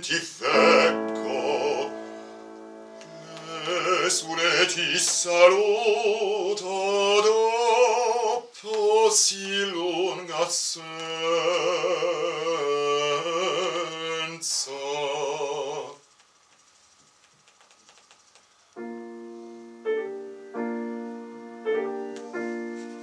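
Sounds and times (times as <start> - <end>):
bass-baritone singing opera: 0.0 - 2.2, 3.2 - 16.0
grand piano: 0.0 - 10.2, 18.7 - 23.0.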